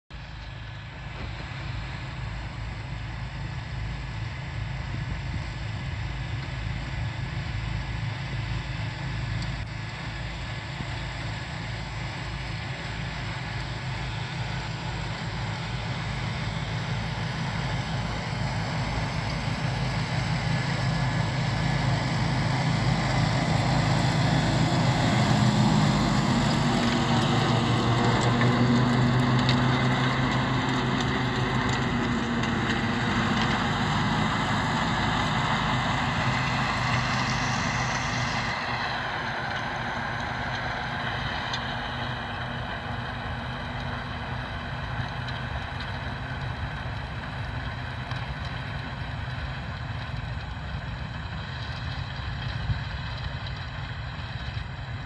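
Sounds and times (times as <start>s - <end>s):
tractor diesel engine under load: 0.0s - 55.0s.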